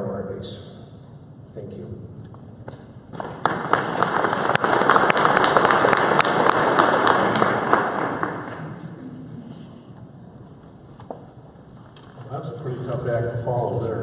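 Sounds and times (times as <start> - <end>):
audience applauding: 3.1 - 9.0.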